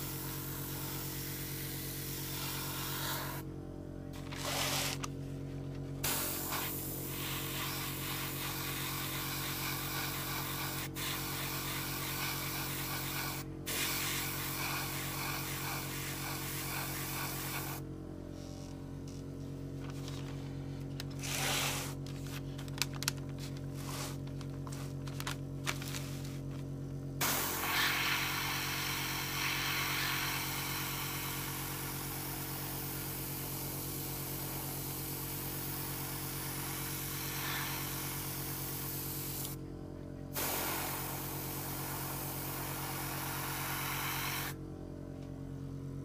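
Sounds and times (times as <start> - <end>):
airbrush spraying hiss: 0.0 - 3.5, 6.0 - 17.8, 27.2 - 39.6, 40.4 - 44.6
compressor humming: 0.0 - 46.0.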